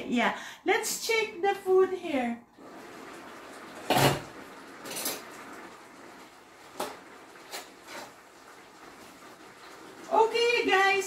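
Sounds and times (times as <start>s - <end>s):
metal pots clanking: 3.8s - 5.3s.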